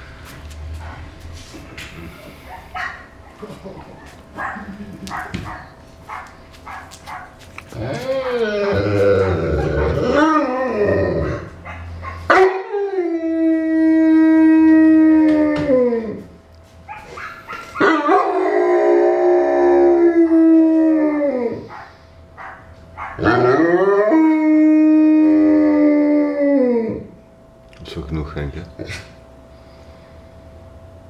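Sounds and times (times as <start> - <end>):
dog howling: 6.8 - 16.3, 16.9 - 27.2.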